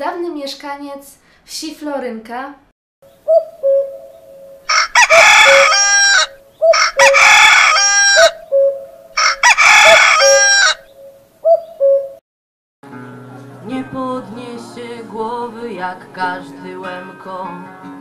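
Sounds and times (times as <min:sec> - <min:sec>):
rooster crowing: 0:04.7 - 0:08.4, 0:09.2 - 0:10.9.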